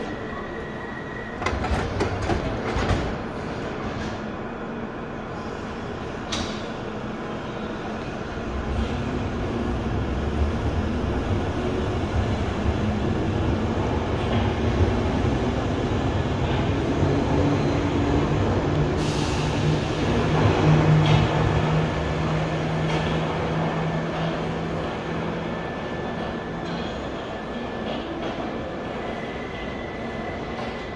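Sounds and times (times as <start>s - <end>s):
train motor hum and wheel rumble: 0.0s - 30.9s
air hiss: 19.0s - 20.1s.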